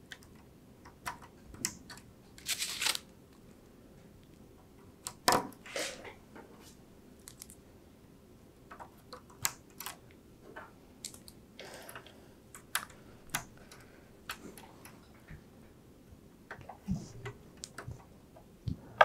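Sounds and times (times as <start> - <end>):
cable rustling: 2.3 - 3.5.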